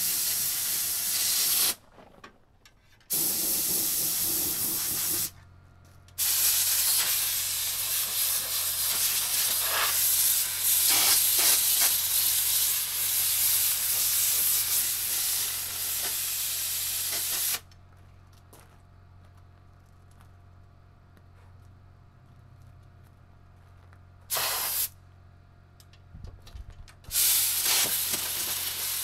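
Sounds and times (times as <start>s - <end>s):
compressed air blasting: 0.0s - 1.8s, 3.1s - 5.4s, 6.2s - 17.7s, 24.3s - 25.0s, 27.1s - 29.0s.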